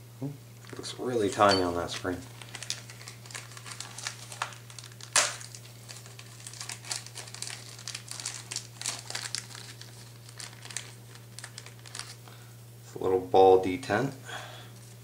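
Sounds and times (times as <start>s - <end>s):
low electrical hum: 0.0s - 15.0s
plastic bag crinkling: 0.6s - 12.3s.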